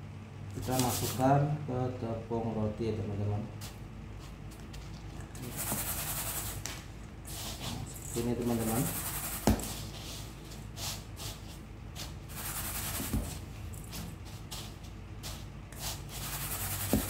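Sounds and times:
breadcrumbs rustling and rubbing: 3.7s - 6.6s, 7.3s - 17.0s.

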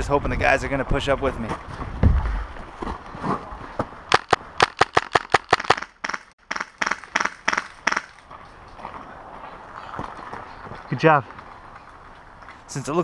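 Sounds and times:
airsoft rifle shots: 4.1s - 8.1s.

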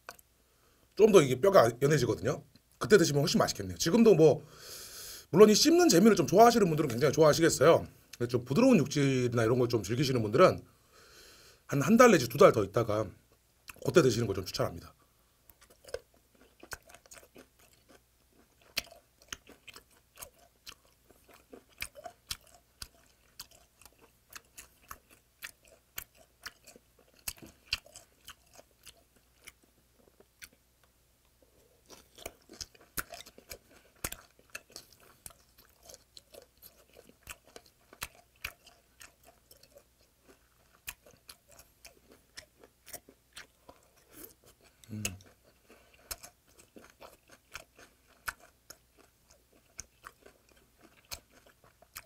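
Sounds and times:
chewing and crunching: 13.6s - 14.8s, 15.4s - 52.0s.

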